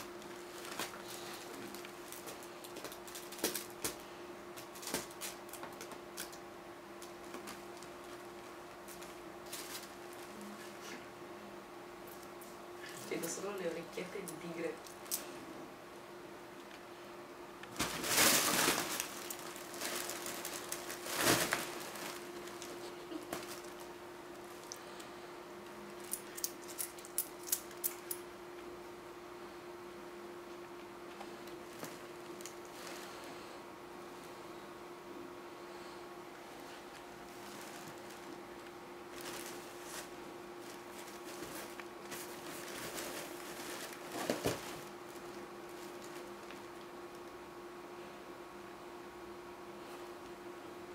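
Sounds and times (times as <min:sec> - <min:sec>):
faint steady hum: 0:00.0 - 0:50.9
kittens scuffling: 0:07.0 - 0:11.0, 0:17.6 - 0:25.1, 0:36.6 - 0:46.8
fabric tunnel rustling: 0:17.7 - 0:24.8, 0:36.6 - 0:46.7.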